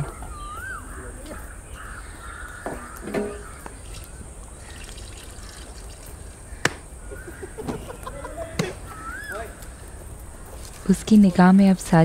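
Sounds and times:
whistled bird calls: 0.0 - 2.2, 6.5 - 9.6
forest ambience: 0.0 - 12.0.

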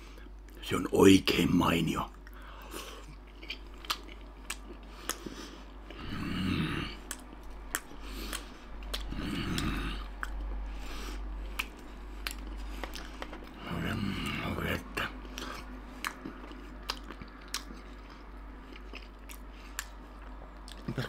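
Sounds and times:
wet chewing and smacking: 2.1 - 6.0, 6.9 - 13.6, 15.2 - 21.0
low mouth sounds: 5.9 - 10.6.

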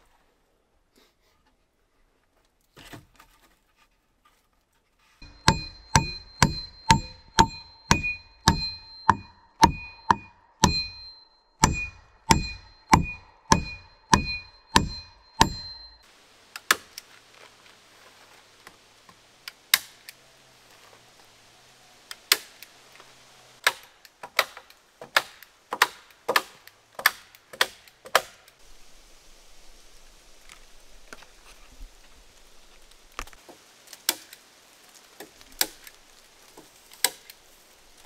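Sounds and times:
dull hatchet blows: 5.2 - 16.0
hatchet striking metal spike: 5.2 - 16.0.

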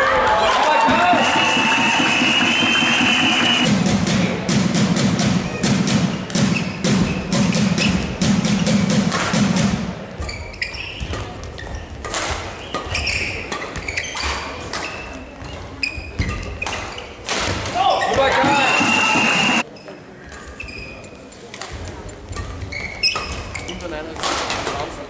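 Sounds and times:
crowd clapping: 0.3 - 3.6
shoes squeaking on court: 6.2 - 8.9, 10.2 - 17.3, 17.9 - 24.7
racket hitting shuttlecock: 6.3 - 18.2.

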